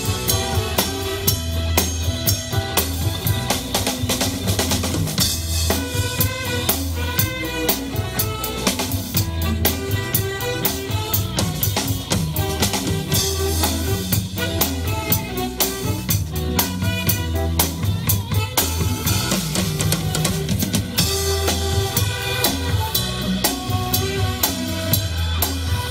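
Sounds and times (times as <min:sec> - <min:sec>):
drum kit beat: 0:00.0 - 0:25.9
low bass notes: 0:00.0 - 0:25.9.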